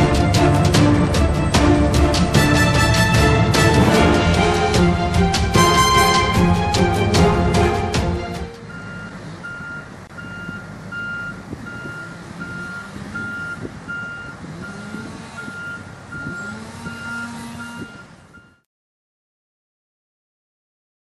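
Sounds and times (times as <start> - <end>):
diesel engine revving: 0.0 - 18.6
backup alarm beeping: 8.6 - 18.7.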